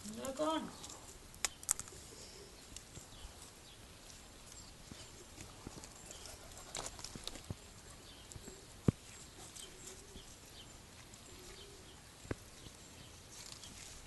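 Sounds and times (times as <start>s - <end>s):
puppies scuffling on gravel: 2.8s - 14.0s.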